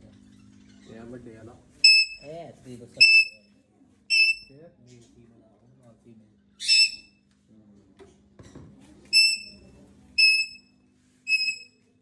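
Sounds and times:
parrot whistled calls: 0:01.8 - 0:02.2, 0:03.0 - 0:03.4, 0:04.1 - 0:04.5, 0:06.6 - 0:07.1, 0:09.1 - 0:09.6, 0:10.2 - 0:10.6, 0:11.3 - 0:11.7.

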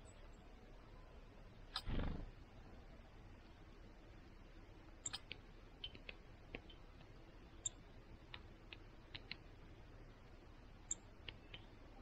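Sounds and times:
bird pecking taps and clicks: 0:08.3 - 0:09.4.

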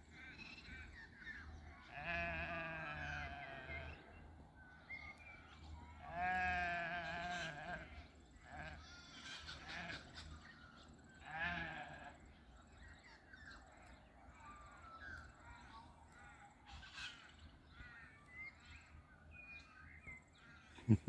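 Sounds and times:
sheep bleating: 0:01.8 - 0:04.0, 0:06.0 - 0:10.2, 0:11.2 - 0:12.2.

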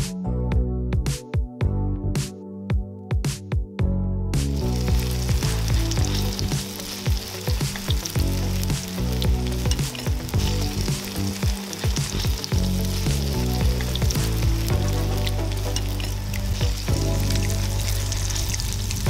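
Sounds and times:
background music: 0:00.0 - 0:19.0
batter sizzling in hot oil: 0:04.4 - 0:19.0.

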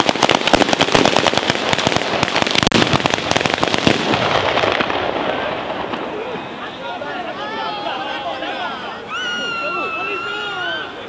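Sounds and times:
firecrackers cracking: 0:00.0 - 0:07.4.

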